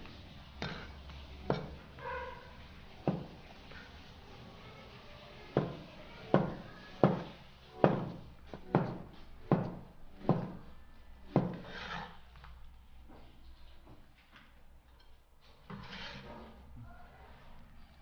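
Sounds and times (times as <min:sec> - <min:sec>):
cleaver knocking on wooden board: 0:06.4 - 0:10.6
knife scraping board: 0:11.4 - 0:12.3, 0:15.6 - 0:16.6.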